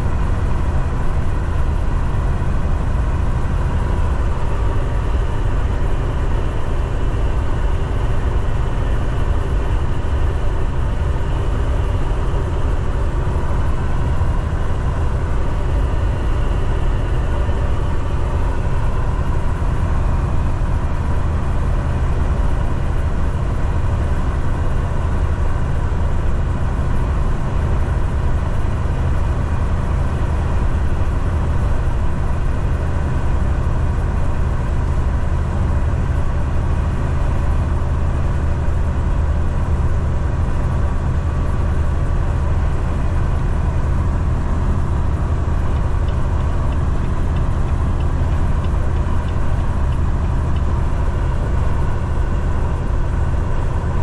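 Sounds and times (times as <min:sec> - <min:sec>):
truck engine drone: 0:00.0 - 0:54.0
road noise: 0:42.0 - 0:54.0.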